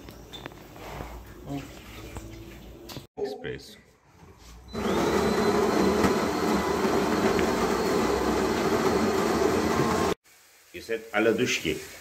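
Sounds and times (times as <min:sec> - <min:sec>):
coffee machine whirring: 0:04.7 - 0:10.2.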